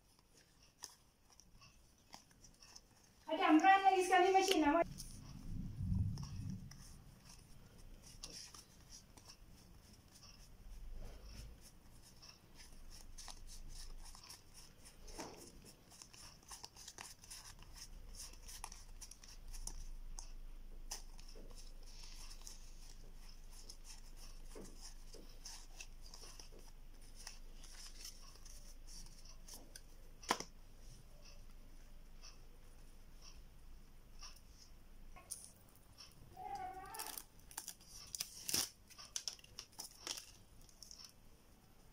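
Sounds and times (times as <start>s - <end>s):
cards sliding and flicking: 29.0s - 30.5s.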